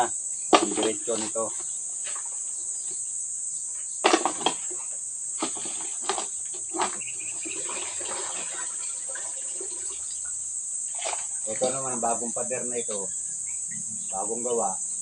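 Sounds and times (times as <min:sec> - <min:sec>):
insects trilling: 0:00.0 - 0:15.0
trash clattering and rustling: 0:04.0 - 0:07.1.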